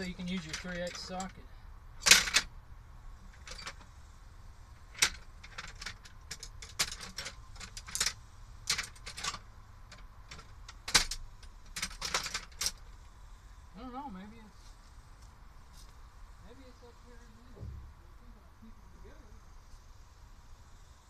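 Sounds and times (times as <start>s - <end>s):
metal tools clinking and clattering: 0.0s - 1.3s.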